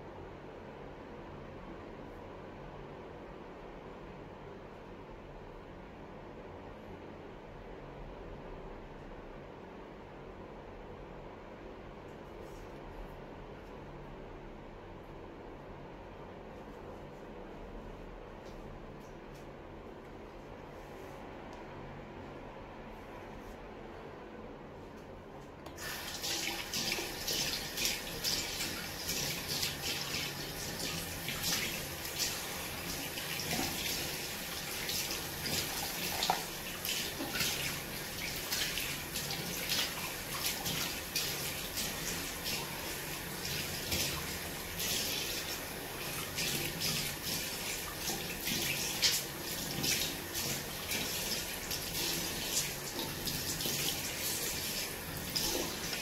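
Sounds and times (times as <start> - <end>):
tap water running into sink: 25.7 - 56.0.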